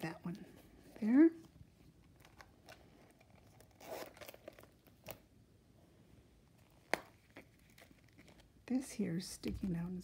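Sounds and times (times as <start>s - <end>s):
hands handling a wallet: 6.5s - 8.6s.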